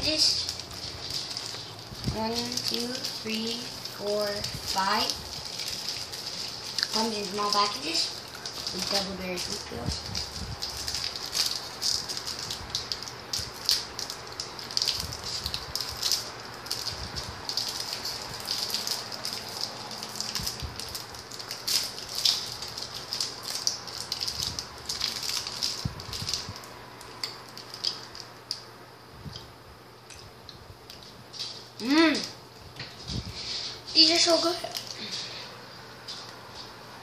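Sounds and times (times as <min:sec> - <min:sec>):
plastic wrapper crinkling: 0:00.0 - 0:28.7, 0:30.8 - 0:36.7.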